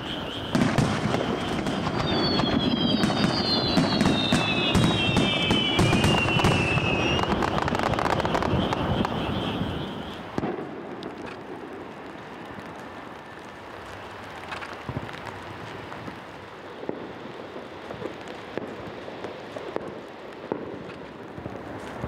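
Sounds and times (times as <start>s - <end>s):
background hiss: 0.0s - 22.0s
firework crackle: 0.0s - 22.0s
firework shells bursting: 0.1s - 16.2s.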